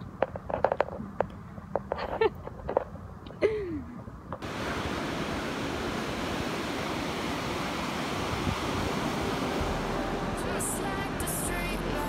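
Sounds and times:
sea surf breaking on shore: 4.4 - 12.0.

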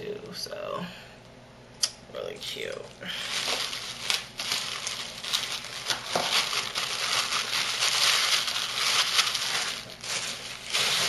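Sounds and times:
shopping bags crinkling: 3.1 - 11.0.

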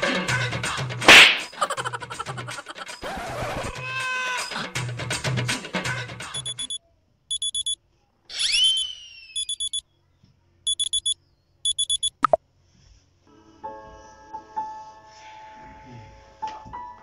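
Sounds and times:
alarm clock beeping: 6.4 - 7.8, 8.4 - 8.8, 9.4 - 9.8, 10.7 - 12.4
whistling call: 8.3 - 9.8.

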